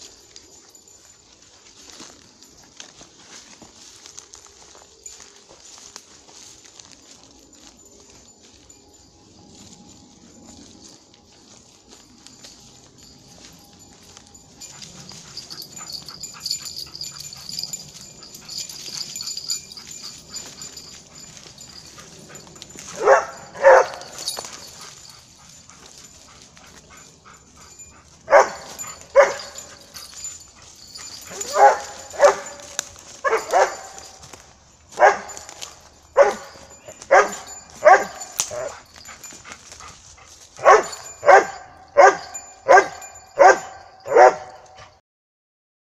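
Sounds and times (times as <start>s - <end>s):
dog barking: 21.8s - 24.6s, 28.3s - 30.2s, 31.0s - 34.2s, 35.0s - 35.6s, 36.2s - 38.9s, 40.6s - 44.9s.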